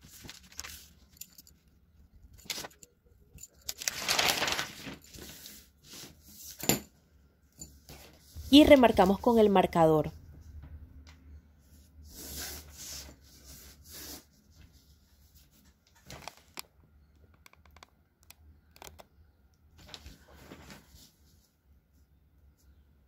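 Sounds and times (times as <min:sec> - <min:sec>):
paper rustle: 0:00.0 - 0:01.5, 0:02.3 - 0:02.8, 0:03.5 - 0:06.6, 0:19.8 - 0:21.5.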